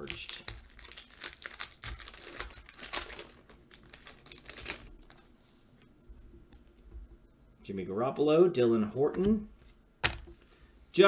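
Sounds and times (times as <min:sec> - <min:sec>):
foil wrapper crinkling and tearing: 0:00.0 - 0:05.2.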